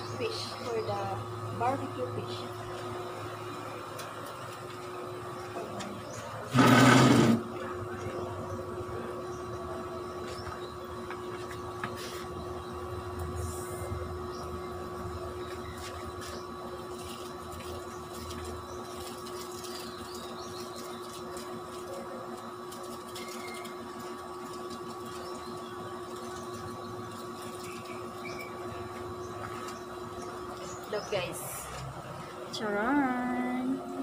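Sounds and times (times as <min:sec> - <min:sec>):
steady machine hum: 0:00.0 - 0:34.0
aluminium foil crinkling: 0:15.8 - 0:28.4.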